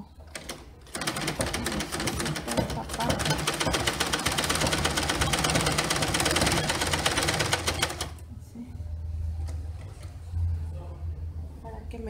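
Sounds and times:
sewing machine needle clattering: 0.3 - 8.2.

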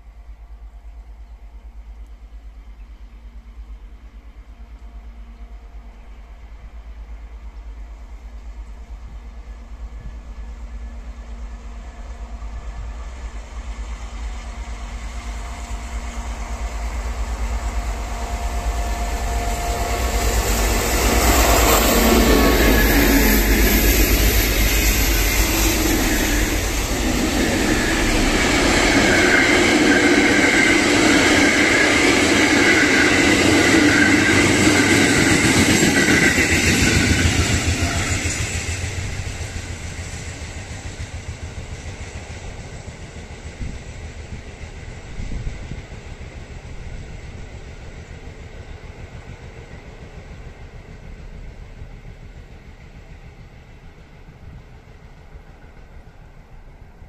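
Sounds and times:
train wheels clattering over rails: 20.0 - 48.4.

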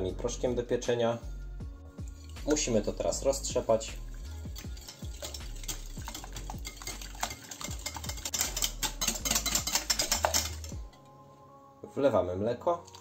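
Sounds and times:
wire whisk clicking against glass: 4.5 - 10.9.

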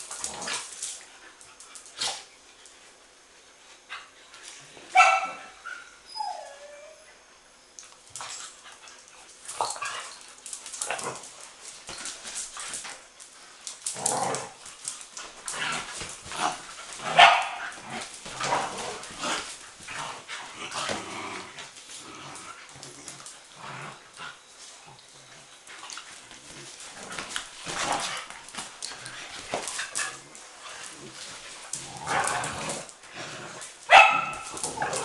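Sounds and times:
young dogs barking and yipping: 16.3 - 19.9, 33.9 - 35.0.

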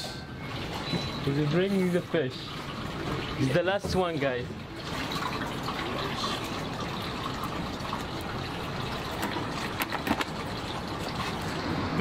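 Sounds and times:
water rushing and bubbling in tank: 0.0 - 12.0.

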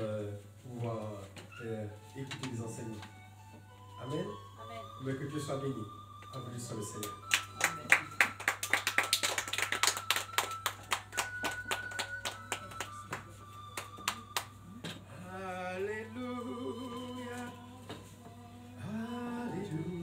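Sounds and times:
hands clapping: 6.9 - 15.0
person singing long notes: 13.6 - 20.0.

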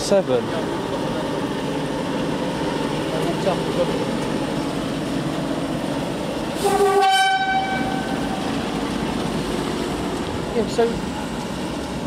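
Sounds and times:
rumble of moving trains: 0.0 - 12.0
two-note train horn: 6.6 - 8.2.

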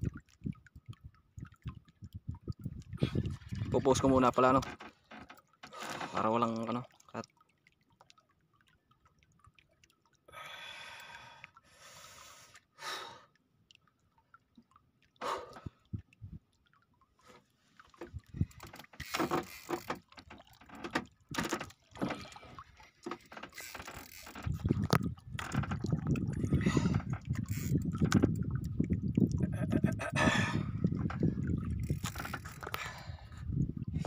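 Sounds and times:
water splashing against hull: 0.0 - 34.0
reel clicks and knocks: 3.4 - 6.3, 17.3 - 22.3, 23.0 - 26.2, 26.9 - 28.4, 31.0 - 32.8.

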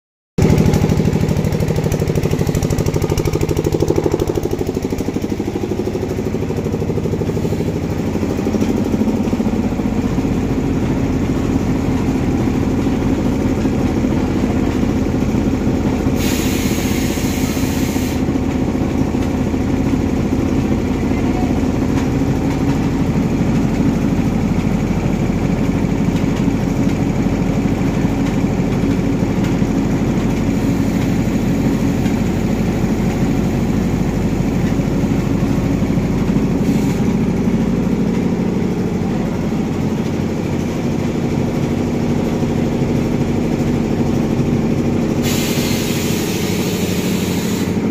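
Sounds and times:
compressed air hissing: 16.1 - 18.3, 36.6 - 37.1, 45.2 - 47.9.

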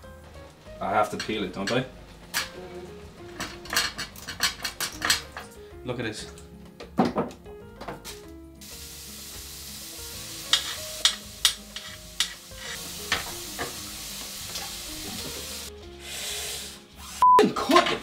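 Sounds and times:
food sizzling in a frying pan: 8.6 - 17.2.

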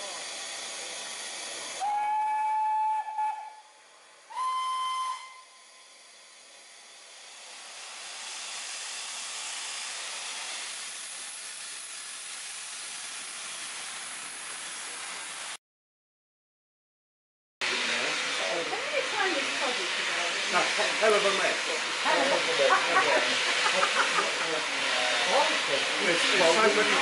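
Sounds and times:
steam hissing: 0.0 - 15.6, 17.6 - 27.0
steam locomotive whistle: 1.8 - 6.0.

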